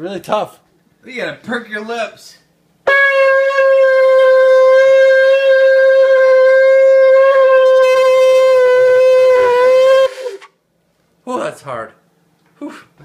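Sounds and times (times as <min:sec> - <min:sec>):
horn blown with one long note: 0:02.8 - 0:10.6.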